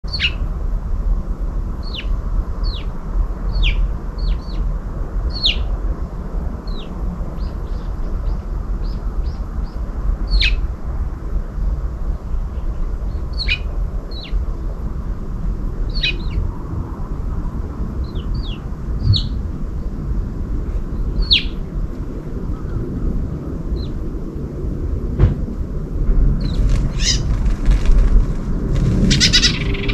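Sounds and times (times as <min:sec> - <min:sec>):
steady low rumble: 0:00.0 - 0:29.9
small birds chirping: 0:00.1 - 0:00.4, 0:01.8 - 0:04.7, 0:05.3 - 0:10.7, 0:12.3 - 0:14.4, 0:15.9 - 0:16.5, 0:18.0 - 0:19.4, 0:21.0 - 0:21.6, 0:26.4 - 0:28.1, 0:29.0 - 0:29.9.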